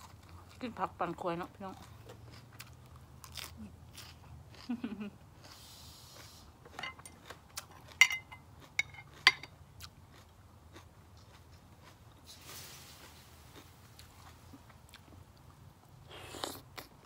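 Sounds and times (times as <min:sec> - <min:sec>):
cutlery clinking against a bowl: 0:07.9 - 0:09.6.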